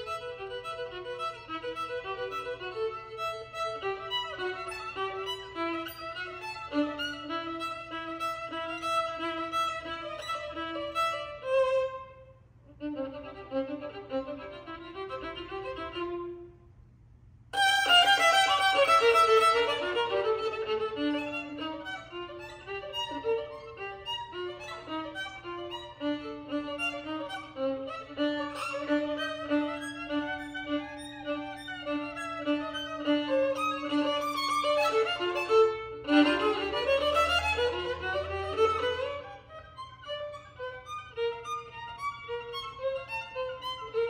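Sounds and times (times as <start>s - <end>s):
solo violin melody: 0.0s - 16.6s, 17.5s - 44.0s.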